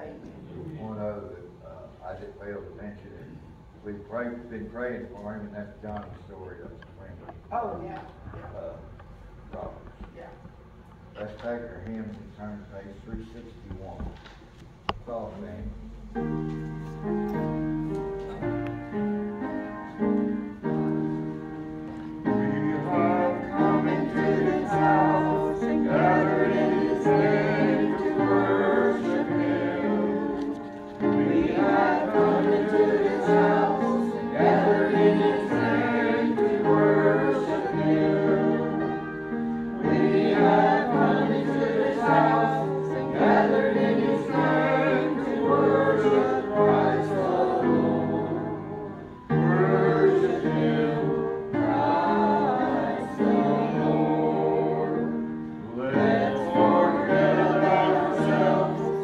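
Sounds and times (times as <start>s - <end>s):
group singing a hymn: 18.3s - 59.0s.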